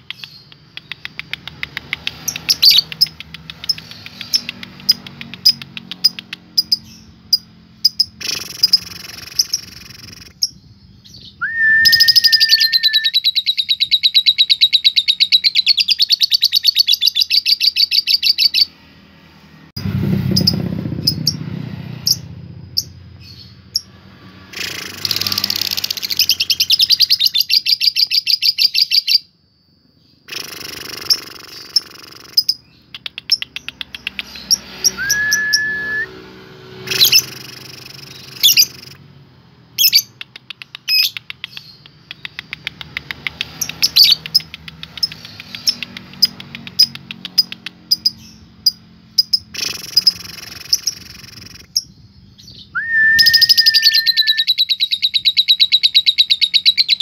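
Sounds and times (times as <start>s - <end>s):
bird chattering trill: 0.0s - 18.7s, 24.5s - 29.3s, 30.2s - 36.0s, 36.8s - 39.0s, 39.8s - 57.0s
bird chirps: 0.0s - 18.8s, 20.3s - 39.1s, 39.7s - 57.0s
bird whistle: 11.1s - 18.7s, 34.4s - 39.0s, 52.4s - 57.0s.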